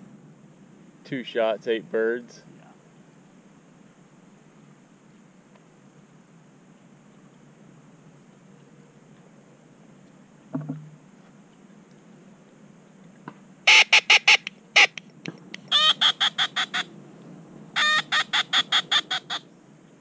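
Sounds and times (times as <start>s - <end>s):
short low knock: 10.5s - 11.0s
duck call quacks: 13.7s - 15.0s.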